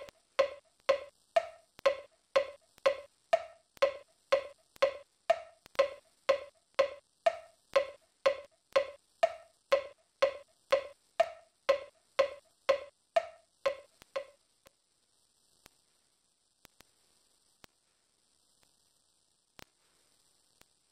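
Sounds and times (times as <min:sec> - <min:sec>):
faint clicks: 0:00.0 - 0:14.4
wood-block-like knocks: 0:00.0 - 0:14.4.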